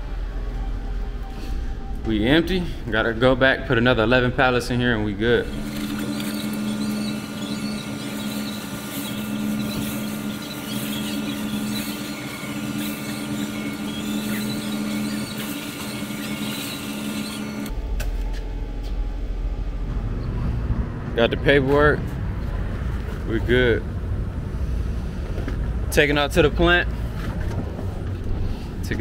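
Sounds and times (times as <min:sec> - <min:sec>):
low rumble: 0:00.0 - 0:05.7, 0:17.7 - 0:25.9
small motor whirring: 0:05.4 - 0:17.7.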